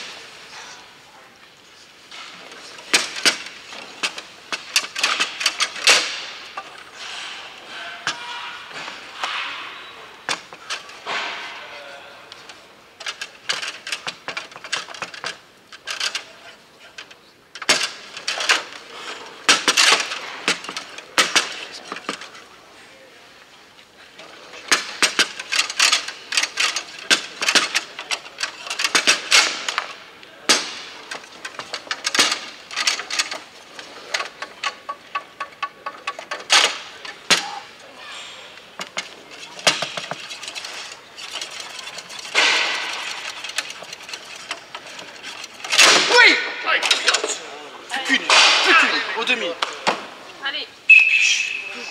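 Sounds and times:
foosball clacks and knocks: 12.4s - 18.8s, 19.4s - 22.4s, 24.4s - 37.8s, 38.6s - 46.2s.

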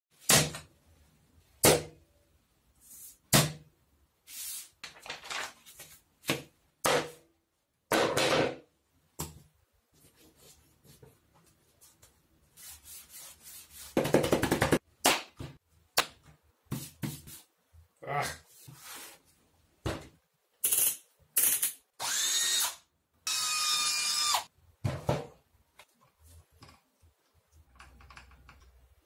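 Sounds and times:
paper rustling and sliding: 4.3s - 6.1s.

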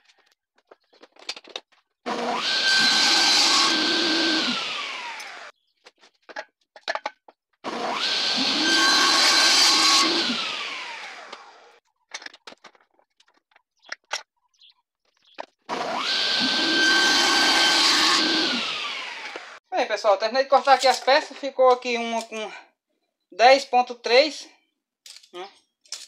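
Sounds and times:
saw winding down whine: 2.1s - 5.5s, 7.7s - 11.8s, 15.7s - 19.6s
table saw running: 2.1s - 5.5s, 7.7s - 11.8s, 15.7s - 19.6s.

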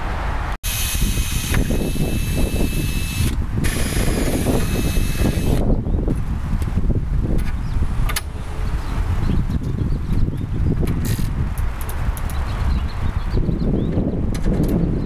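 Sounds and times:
cordless drill boring metal: 0.7s - 5.7s.

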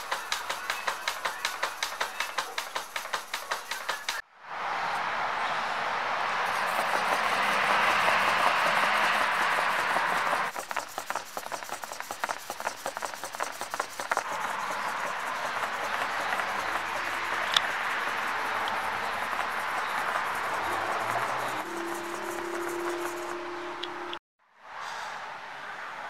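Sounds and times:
robot legs clicking on wood: 0.0s - 4.2s, 6.5s - 23.3s
loud steady rushing noise: 0.0s - 11.0s, 11.8s - 24.2s.

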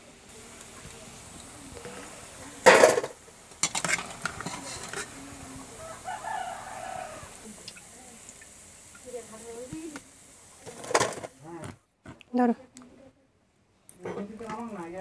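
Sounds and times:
chicken calling: 5.6s - 7.5s.

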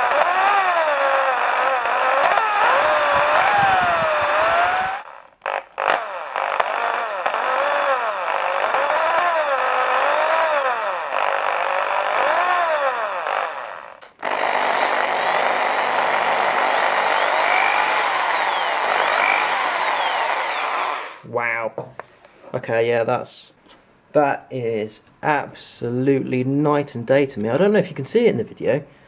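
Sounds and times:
drill motor whining: 0.0s - 21.3s.

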